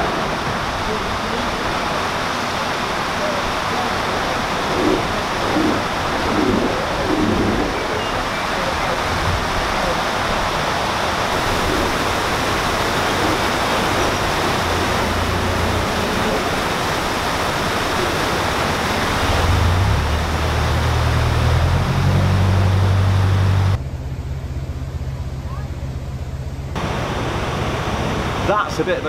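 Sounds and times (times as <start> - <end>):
water rushing through lock paddles: 0.0 - 23.8, 26.8 - 29.0
low hum: 4.2 - 8.3, 19.1 - 28.4.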